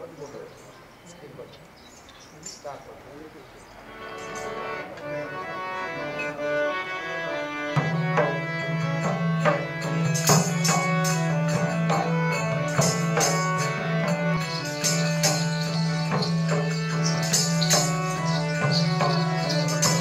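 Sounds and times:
harmonium melody: 3.1s - 20.0s
hand drum beat: 9.0s - 20.0s.

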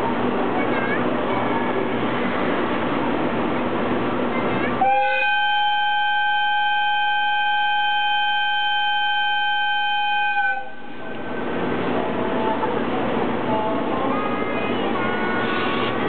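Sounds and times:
locomotive horn blast: 4.8s - 10.9s.

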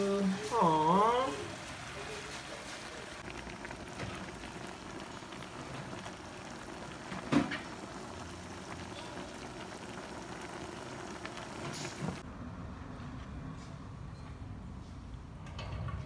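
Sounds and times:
soup bubbling and simmering: 0.0s - 12.3s.

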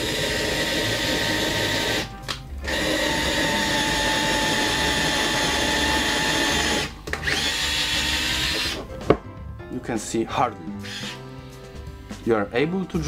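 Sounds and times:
cordless drill boring into wood: 0.0s - 8.8s, 10.8s - 11.2s.

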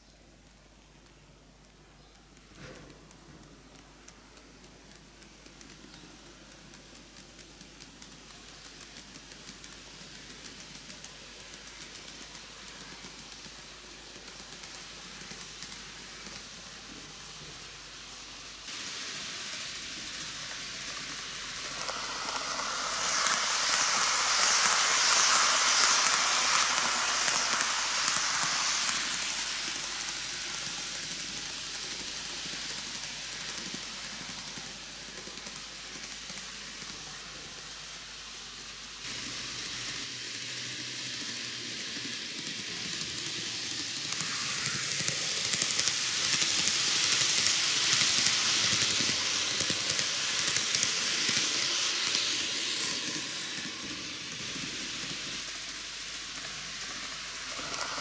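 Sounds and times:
faint regular ticks: 0.4s - 17.6s
model train wheels rattling: 0.8s - 58.0s.

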